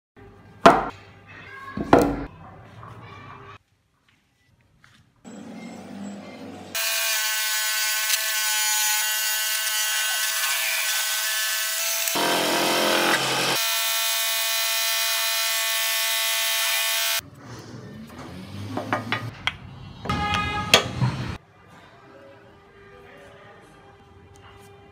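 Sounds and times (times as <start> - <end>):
bandsaw cutting wood: 6.7 - 17.2.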